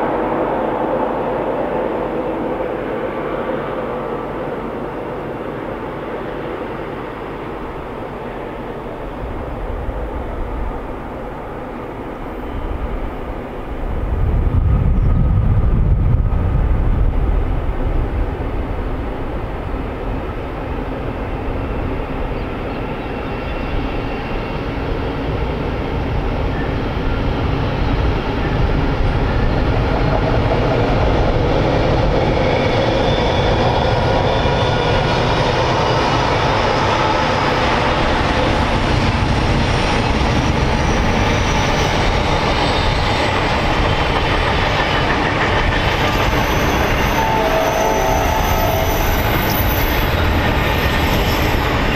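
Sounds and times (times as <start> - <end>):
diesel locomotive engines droning: 0.0 - 51.9
deep rumble: 13.6 - 19.4.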